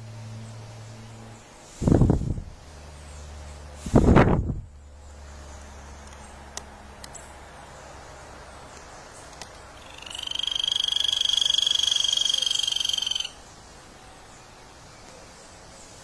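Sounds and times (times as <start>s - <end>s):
quiet forest ambience: 0.0s - 16.0s.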